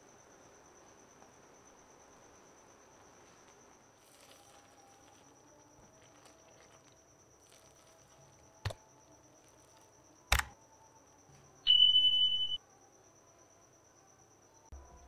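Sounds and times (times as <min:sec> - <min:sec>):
faint steady high whine: 0:00.0 - 0:15.0
high beep: 0:11.7 - 0:12.6.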